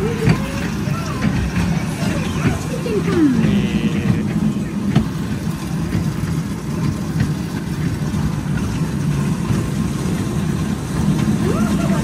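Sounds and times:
kiddie train rumbling on track: 0.0s - 12.0s.

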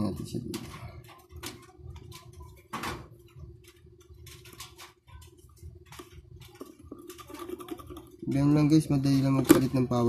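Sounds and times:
tweezers clicking and scraping plastic: 0.4s - 8.1s.

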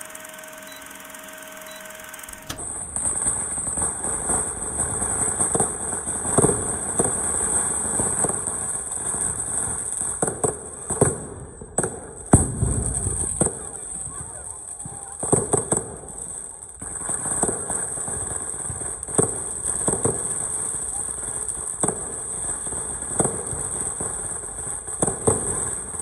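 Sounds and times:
short beeps: 0.0s - 2.6s
firecracker crackle: 0.0s - 26.0s
fireworks bangs and pops: 0.0s - 26.0s.

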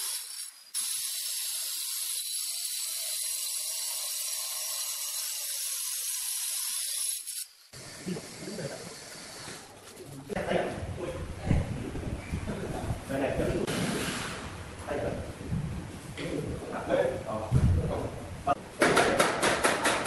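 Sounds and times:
circular saw cutting stone: 0.0s - 7.8s.

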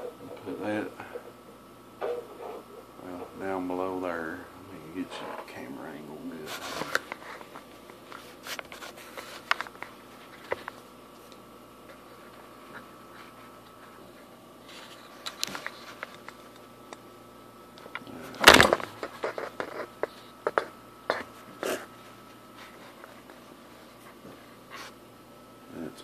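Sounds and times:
faint high whine: 0.0s - 26.0s
camera bump: 18.4s - 20.7s.

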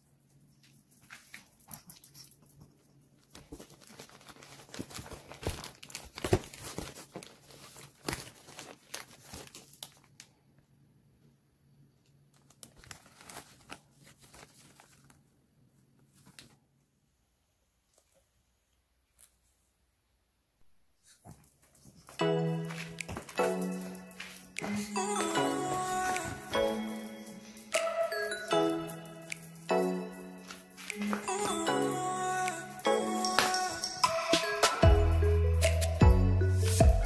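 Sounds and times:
packaging crinkling and tearing: 3.3s - 10.4s, 12.3s - 15.3s.

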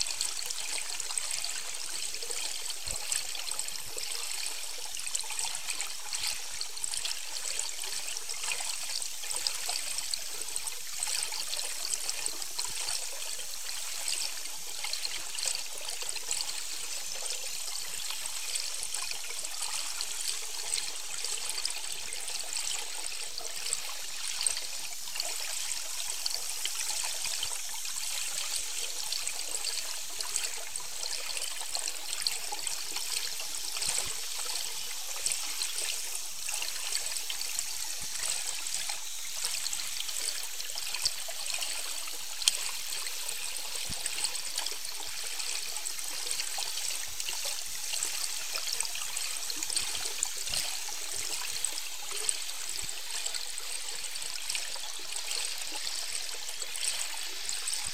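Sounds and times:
underwater hiss of moving water: 0.0s - 57.9s.

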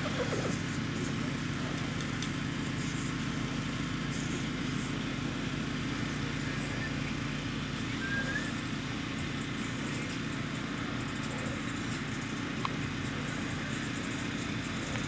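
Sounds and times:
vehicle engine idling: 0.0s - 15.0s
faint chirp: 6.6s - 8.6s.

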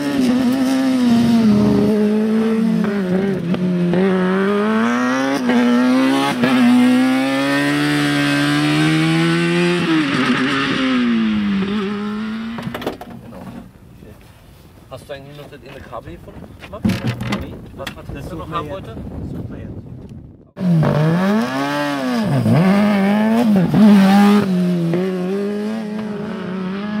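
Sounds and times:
race car engine revving: 0.0s - 12.8s, 20.6s - 27.0s.

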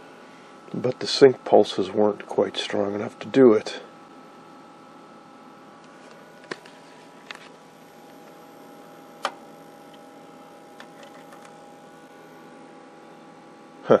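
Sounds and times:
steady electrical hum: 0.0s - 14.0s
clicks of test probe and clip: 9.2s - 10.1s.

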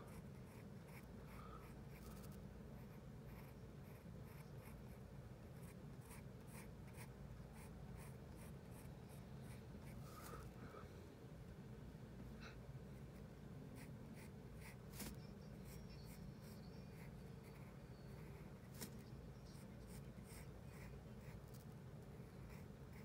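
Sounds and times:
pencil scratching on paper: 0.0s - 4.9s, 5.6s - 10.0s, 19.6s - 21.5s, 22.5s - 23.0s
low steady hum: 0.0s - 23.0s.

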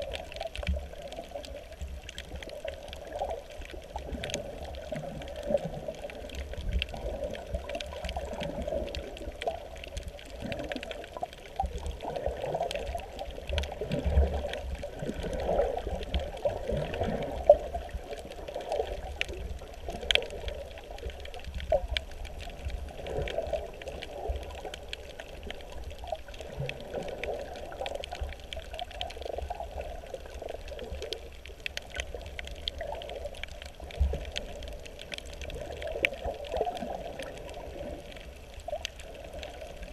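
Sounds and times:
faint clicks: 0.0s - 39.9s
water sloshing underwater: 0.0s - 39.9s.

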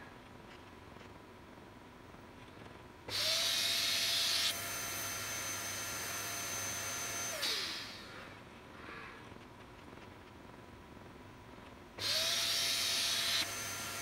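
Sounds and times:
vacuum motor rushing hiss and whine: 3.1s - 8.4s, 12.0s - 14.0s.

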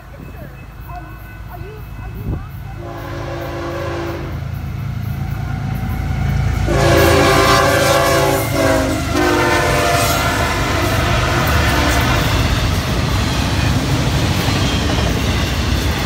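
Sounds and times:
locomotive engine and wheels rumbling: 0.0s - 16.0s
locomotive air horn blasts: 2.8s - 4.4s, 6.6s - 12.6s.

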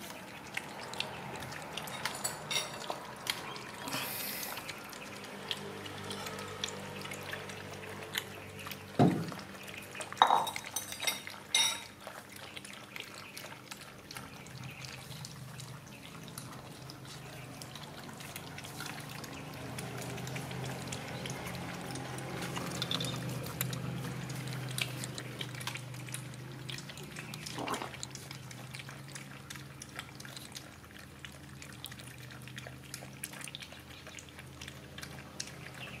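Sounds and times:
puppies lapping milk: 0.0s - 36.0s
knocks on plastic tray: 9.0s - 9.3s.

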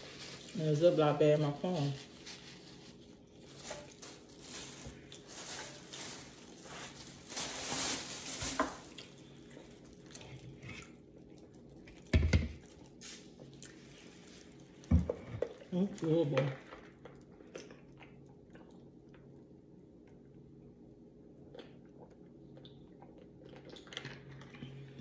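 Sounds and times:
paper napkin rustling: 0.0s - 9.1s.

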